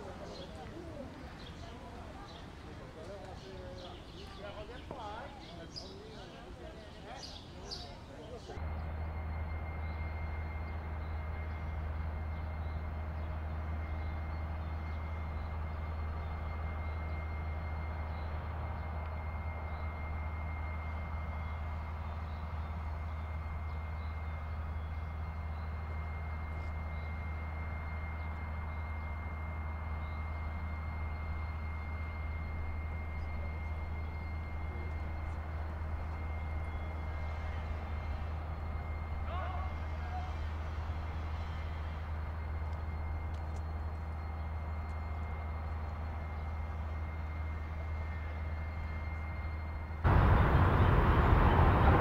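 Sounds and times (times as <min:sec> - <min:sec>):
low rumbling drone: 0:08.6 - 0:39.3, 0:49.6 - 0:52.0.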